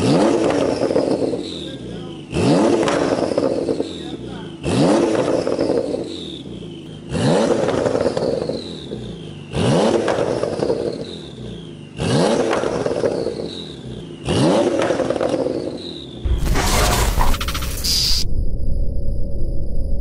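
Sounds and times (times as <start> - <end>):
car engine revving: 0.0 - 18.2
turbo whistle: 16.5 - 18.4.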